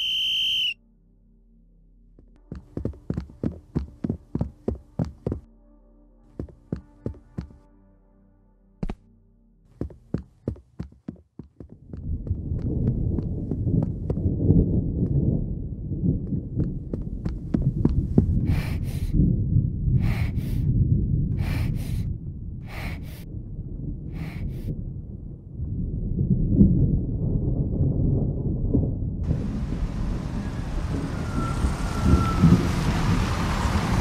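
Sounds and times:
heartbeat-like doubled pulse: 2.5s - 5.5s
thick low rumble: 9.8s - 33.4s.

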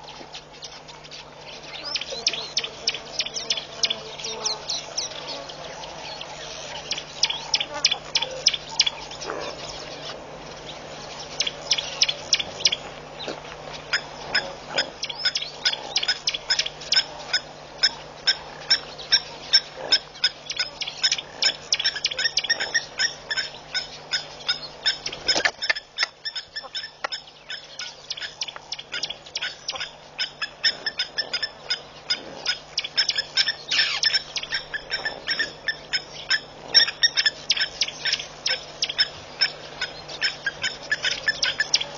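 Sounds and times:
lapwings giving metallic alarm calls: 13.6s - 41.9s.

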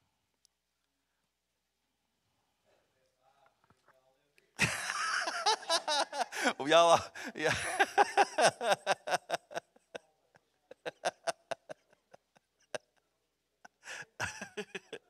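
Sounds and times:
person laughing: 4.6s - 10.0s, 10.7s - 12.9s, 13.7s - 15.0s.

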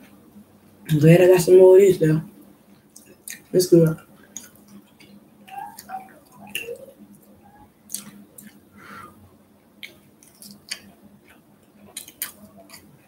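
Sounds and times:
person chewing: 2.9s - 8.7s, 9.8s - 13.0s.

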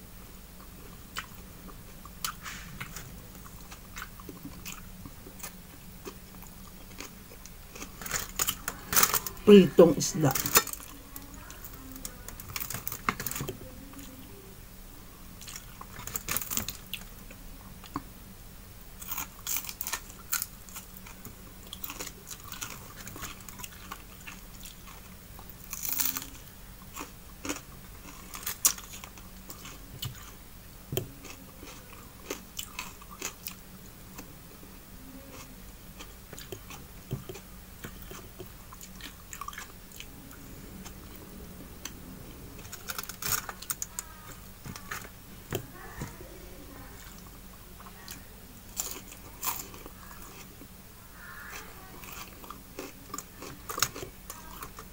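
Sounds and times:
chewing and crunching food: 0.6s - 14.2s, 15.4s - 18.1s, 19.0s - 30.4s, 31.0s - 34.6s, 35.2s - 54.9s.

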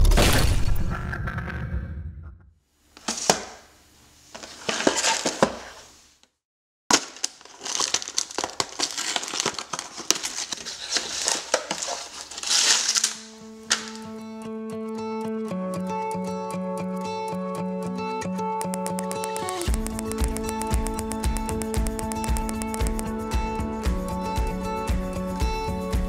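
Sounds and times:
crinkling plastic bags: 6.9s - 14.2s.

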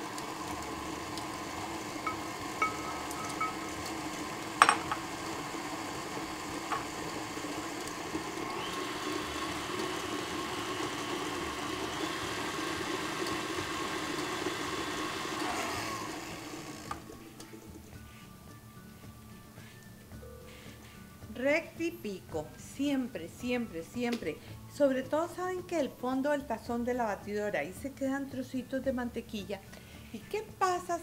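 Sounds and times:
stand mixer motor hum: 0.0s - 17.2s.

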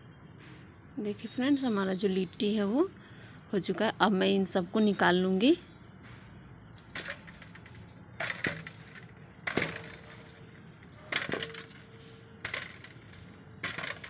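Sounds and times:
scraping and crackling of ash: 6.8s - 14.0s.

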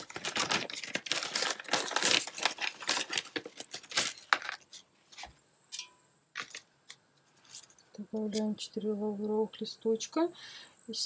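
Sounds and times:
packet crinkling and rustling: 0.0s - 5.3s.

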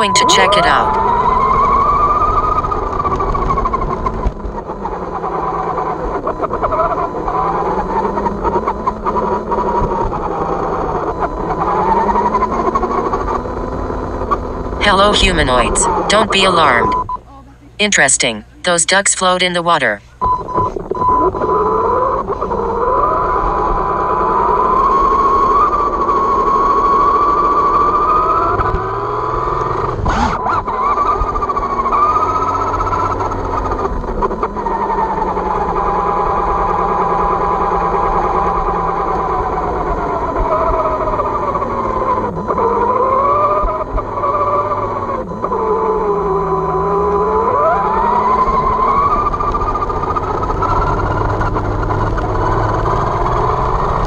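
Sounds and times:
steady high tone: 0.0s - 1.0s, 14.8s - 20.2s.

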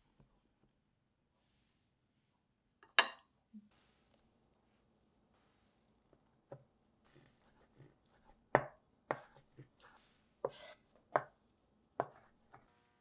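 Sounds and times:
knife chopping on wooden board: 8.5s - 9.7s, 10.4s - 11.3s, 12.0s - 12.6s.

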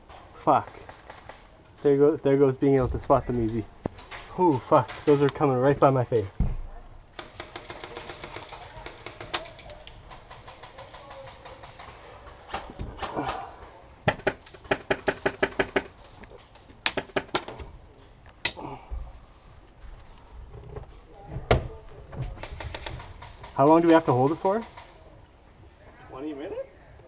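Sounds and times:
airsoft guns firing bursts: 7.1s - 13.4s, 14.0s - 15.9s, 22.4s - 25.0s.

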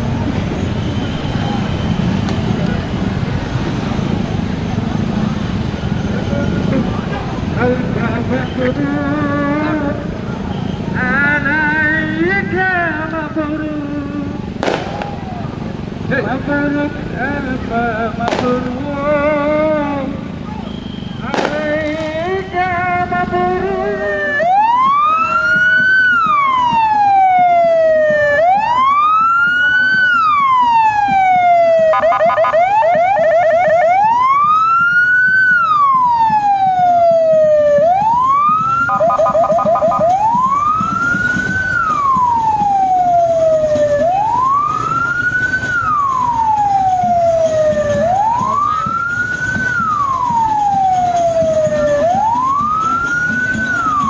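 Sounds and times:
sharp crack: 14.6s - 15.4s, 18.3s - 18.8s, 21.3s - 22.2s
police siren wailing: 21.3s - 54.0s
siren yelping warble: 28.2s - 54.0s.

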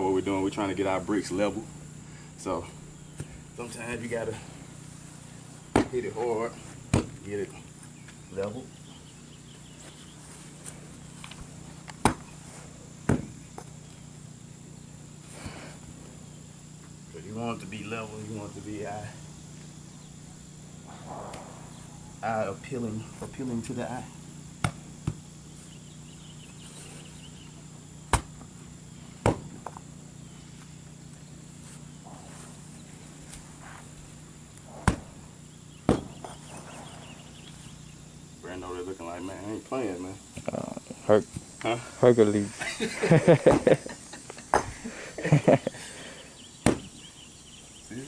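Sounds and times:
faint steady hum: 0.0s - 48.0s
sharp knocks: 5.7s - 6.0s, 6.9s - 7.2s, 28.1s - 28.4s, 29.2s - 29.7s, 34.8s - 35.2s, 35.8s - 36.4s, 46.6s - 47.0s
sharp knocks on stone blocks: 46.6s - 46.9s.

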